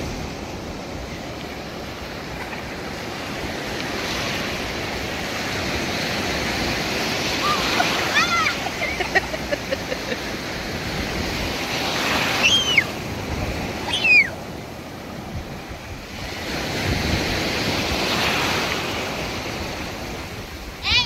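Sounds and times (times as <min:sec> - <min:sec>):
ocean surf breaking: 0:00.0 - 0:21.0
short high bird cries: 0:12.4 - 0:12.9.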